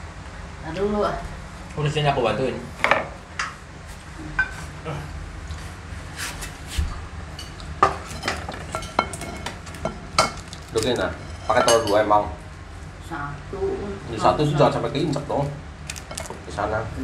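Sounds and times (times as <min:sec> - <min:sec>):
metal spoon clinking on ceramic bowl: 0:11.4 - 0:12.0.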